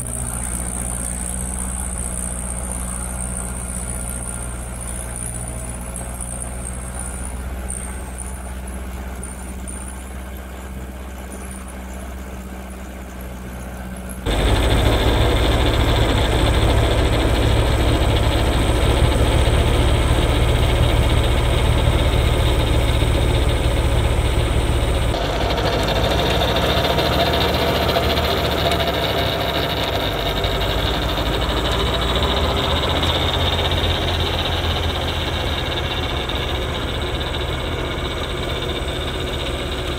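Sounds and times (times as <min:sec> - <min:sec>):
tractor diesel engine running: 0:00.0 - 0:39.9
snowblower throwing snow: 0:14.3 - 0:37.5.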